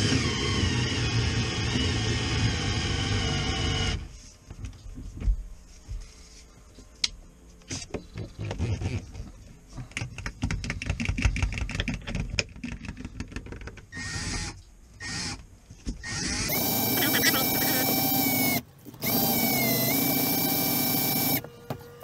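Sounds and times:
cordless drill running: 16.0s - 21.5s.

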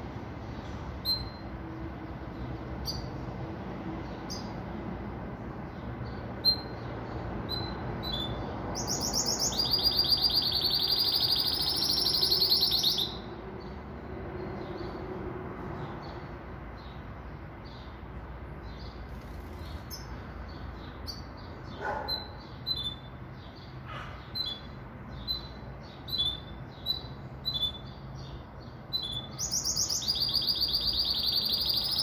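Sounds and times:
caged bird chirping: 0.0s - 32.0s
bird trilled song: 1.0s - 1.4s, 2.8s - 3.2s, 5.7s - 13.3s, 18.6s - 32.0s.

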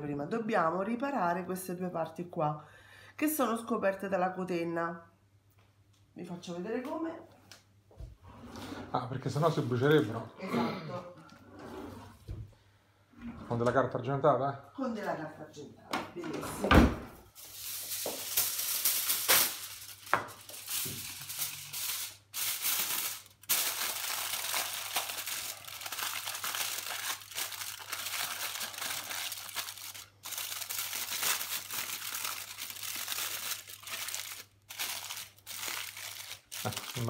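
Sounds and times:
aluminium foil crinkling: 17.4s - 37.0s.

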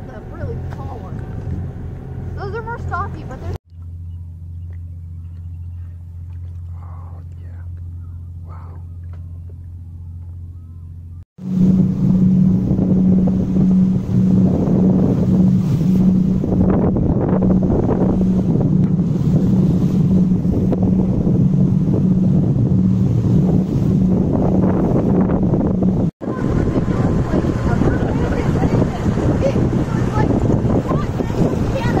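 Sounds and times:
water rushing past hull: 0.0s - 3.6s, 11.4s - 32.0s
boat engine hum: 0.0s - 32.0s
wind buffeting microphone: 11.4s - 32.0s.

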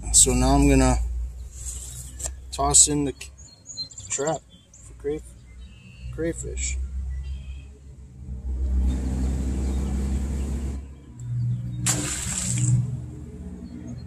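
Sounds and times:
traffic engine noise: 0.0s - 14.0s
trap splashing into water: 11.8s - 13.0s.

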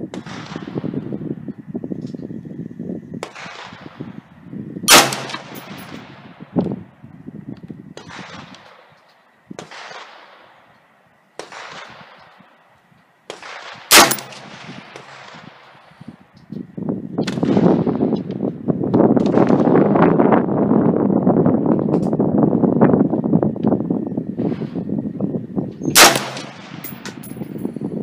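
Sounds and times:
loud rifle shots: 4.9s - 6.2s, 9.6s - 10.4s, 11.4s - 12.2s, 13.3s - 15.8s, 25.9s - 27.4s.

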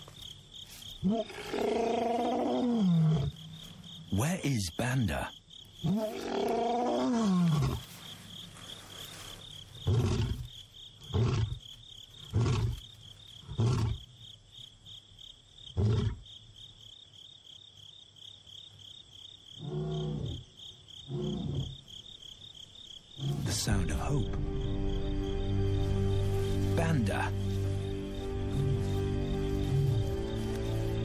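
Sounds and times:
crickets chirping: 0.0s - 31.0s
lion roaring and grunting: 1.0s - 3.4s, 5.8s - 7.9s, 9.8s - 11.6s, 21.1s - 21.8s, 23.2s - 23.7s.

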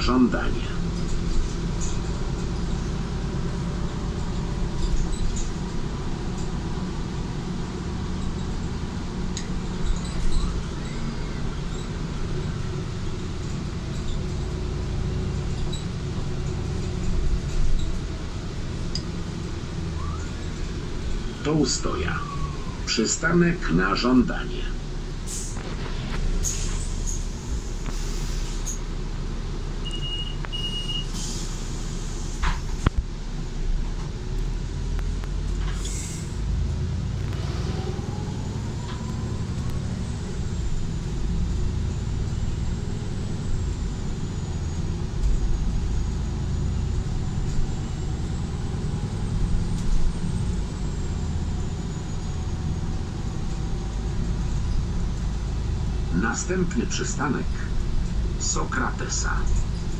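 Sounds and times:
bus engine and road rumble: 0.0s - 59.9s
short hisses: 26.4s - 28.8s.

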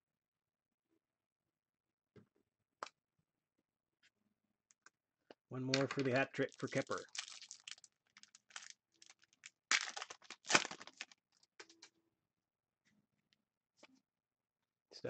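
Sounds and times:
cards shuffling: 5.7s - 7.7s, 9.8s - 11.2s
wrapper tearing and crinkling: 5.7s - 11.2s.

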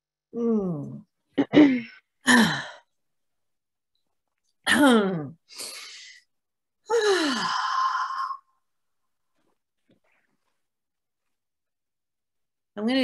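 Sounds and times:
woman breathing: 5.5s - 6.3s.

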